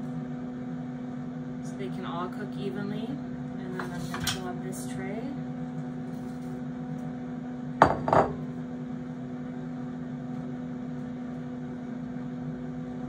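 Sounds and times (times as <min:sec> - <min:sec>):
air fryer humming: 0:00.0 - 0:13.0
glass bowl clinking on tray: 0:07.8 - 0:08.4.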